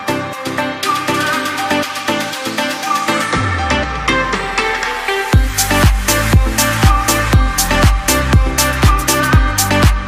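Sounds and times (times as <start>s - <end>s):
electronic dance music: 0.0s - 10.0s
steady kick drum: 5.4s - 10.0s.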